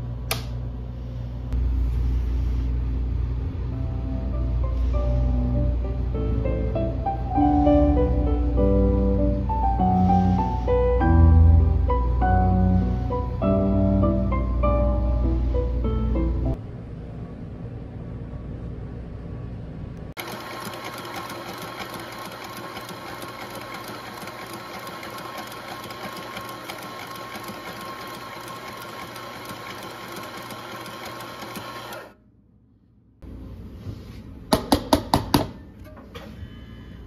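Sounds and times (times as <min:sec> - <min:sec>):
espresso grinder running: 0:20.2 - 0:32.1.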